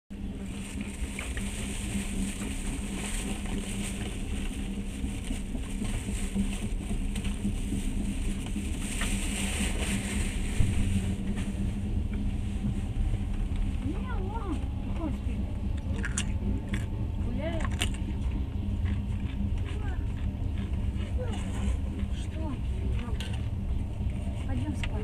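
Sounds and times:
passenger train rumbling: 0.1s - 25.0s.

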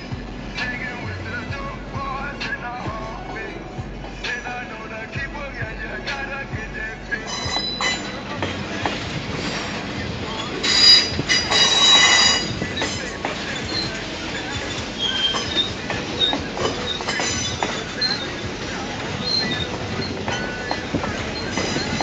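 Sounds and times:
train rolling noise: 0.0s - 22.0s
train wheels squealing on rails: 7.2s - 22.0s.

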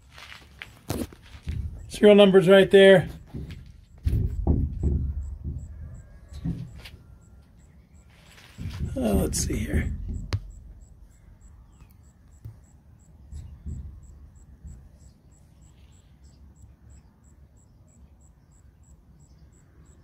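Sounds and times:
soft knocks: 3.0s - 7.2s, 8.5s - 10.9s, 13.3s - 14.8s
handling rumble: 8.3s - 11.8s.

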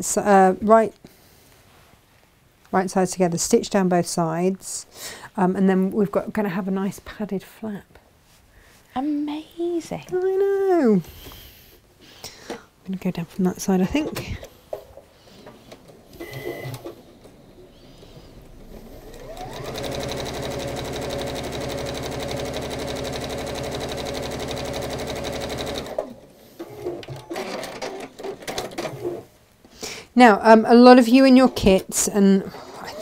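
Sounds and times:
sewing machine stitching: 16.1s - 29.2s.

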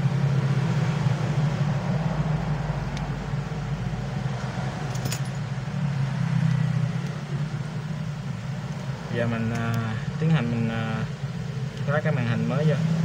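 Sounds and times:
low background hum: 2.8s - 6.0s.

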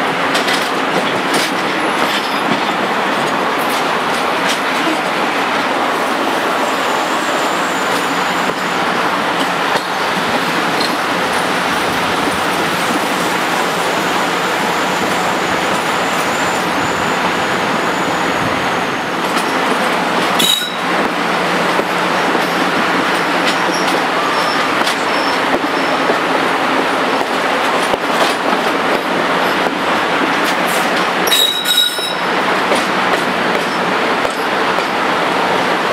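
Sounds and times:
diesel locomotive engine: 0.0s - 35.9s
train wheels on rail: 0.0s - 35.9s.

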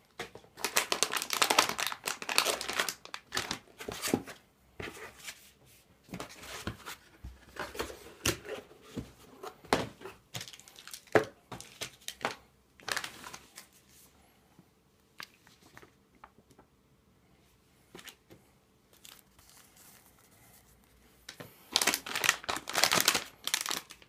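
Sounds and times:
packaging rustling and scraping: 0.6s - 5.4s, 6.2s - 13.8s, 19.0s - 24.0s.

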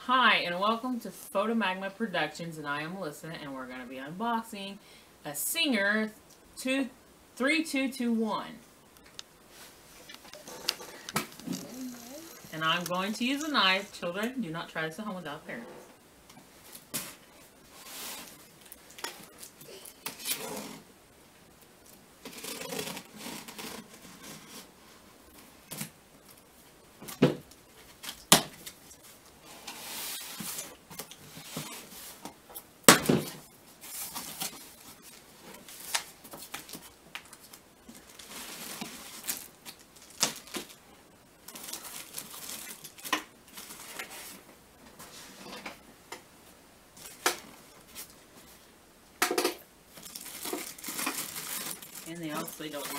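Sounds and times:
rustling and tearing: 21.9s - 24.8s, 33.8s - 40.8s, 41.4s - 45.4s, 49.9s - 52.9s.

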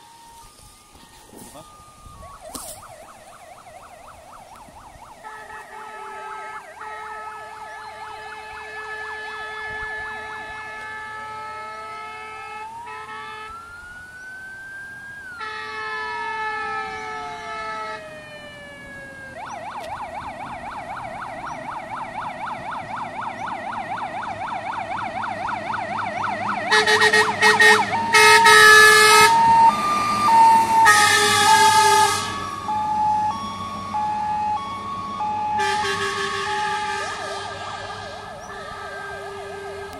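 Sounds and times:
fire engine siren: 0.0s - 39.9s
long horn blasts: 5.0s - 13.6s, 15.4s - 18.1s, 26.7s - 32.8s, 35.5s - 39.9s.

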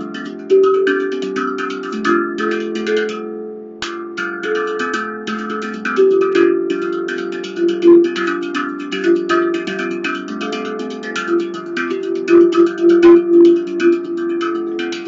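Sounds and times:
handpan notes ringing: 0.0s - 15.0s.

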